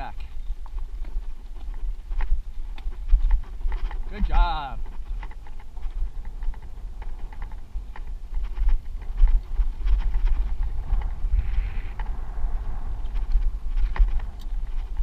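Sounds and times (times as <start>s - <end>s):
bike clicking and rattling: 0.0s - 15.0s
tyres crunching on rocky trail: 0.0s - 15.0s
wind buffeting microphone: 0.0s - 15.0s.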